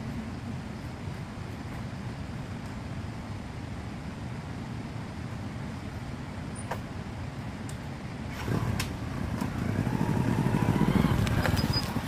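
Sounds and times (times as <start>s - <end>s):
motorcycle engine running: 8.4s - 12.0s.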